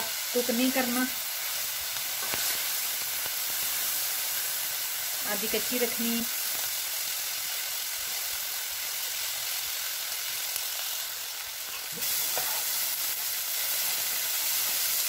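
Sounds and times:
vegetables sizzling in oil: 0.0 - 15.0
spatula turning food: 0.7 - 4.4, 11.7 - 13.0.

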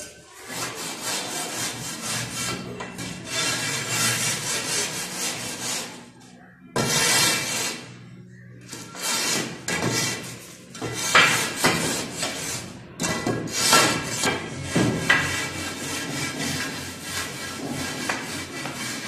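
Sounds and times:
metal straightedge scraping wet cement: 0.5 - 6.0, 6.8 - 7.9, 8.7 - 14.5.

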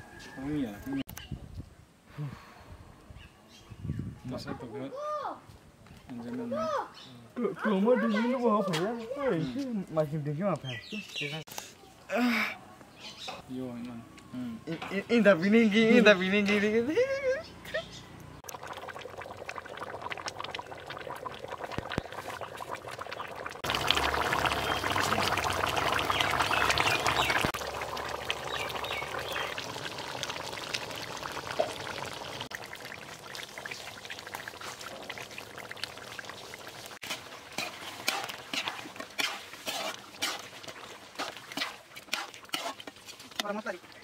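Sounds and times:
pops and clicks: 18.4 - 32.6
curry bubbling in a pan: 18.4 - 44.0.

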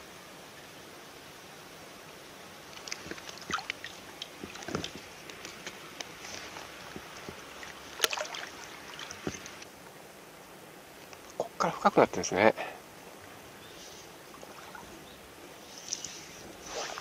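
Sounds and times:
water splashing and sloshing: 2.5 - 9.7, 14.2 - 17.0
fish slapping water: 2.7 - 9.6.

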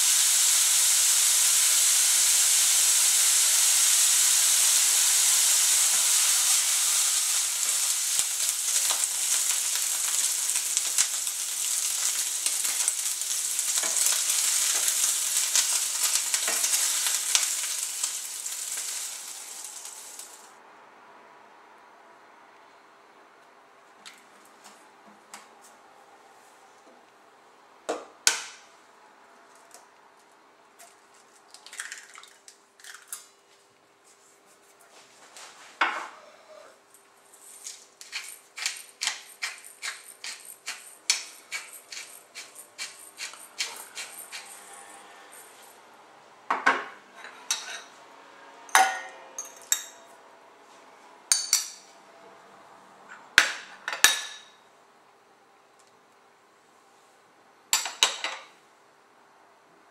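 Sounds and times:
pepper mill grinding: 1.2 - 20.5, 37.4 - 45.8.

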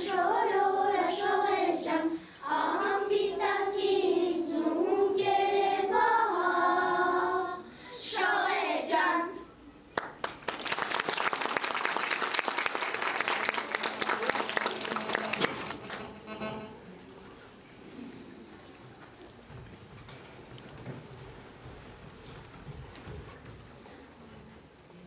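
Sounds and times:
children's choir singing: 0.0 - 9.5
audience applause: 10.1 - 16.1.

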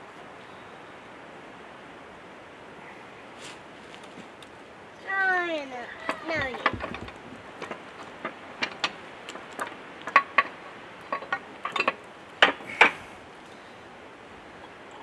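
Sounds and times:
metal tools clinking: 5.9 - 12.9.

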